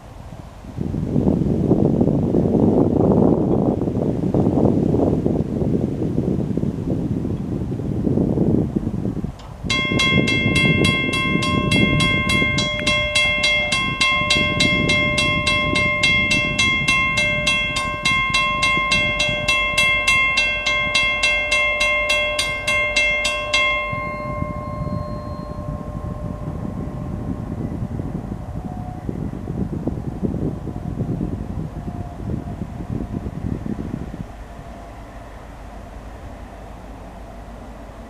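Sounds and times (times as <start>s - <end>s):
wind buffeting microphone: 0.0s - 38.0s
railroad crossing bell ringing: 9.6s - 29.7s.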